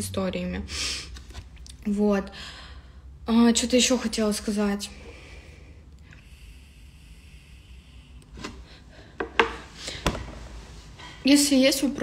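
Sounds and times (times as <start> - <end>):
breathy exhale: 4.9 - 10.1
air hissing through vape: 6.2 - 8.4.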